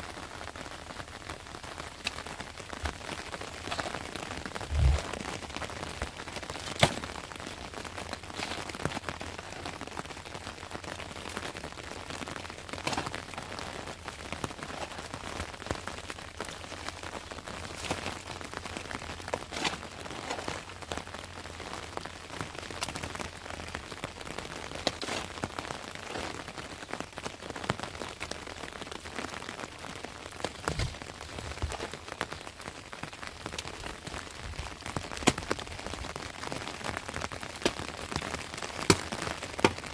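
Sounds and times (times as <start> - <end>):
shovel scraping stony soil: 3.6 - 5.4, 19.3 - 20.6.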